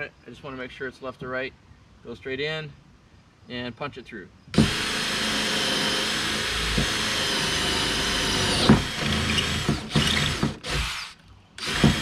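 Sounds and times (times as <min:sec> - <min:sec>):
cordless drill boring: 0:04.6 - 0:12.0.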